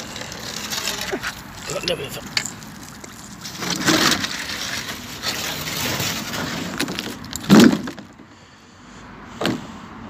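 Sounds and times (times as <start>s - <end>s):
metal sign scraping on stone: 0.0s - 7.3s.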